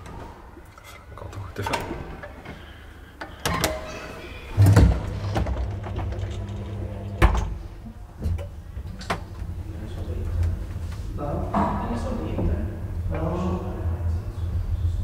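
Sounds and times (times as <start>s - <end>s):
elevator doors closing: 0.0s - 10.6s
elevator machinery hum: 0.0s - 15.0s.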